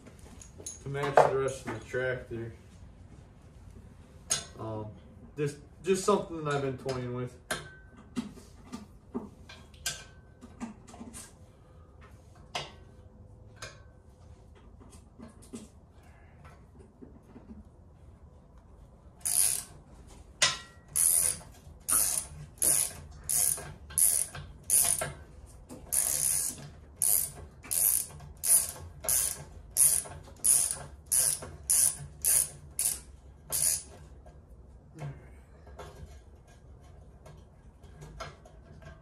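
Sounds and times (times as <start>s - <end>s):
ratchet wrench clicking: 19.2s - 19.8s, 20.9s - 25.2s, 25.9s - 33.9s.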